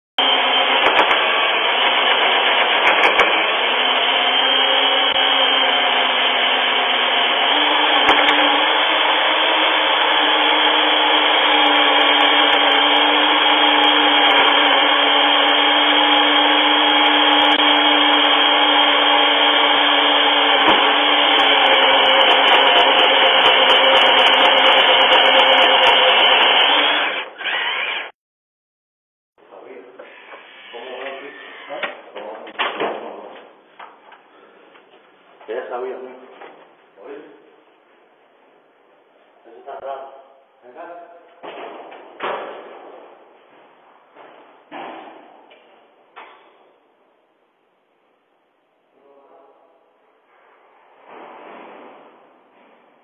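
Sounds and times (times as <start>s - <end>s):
electric motor whirring: 0.2s - 28.2s.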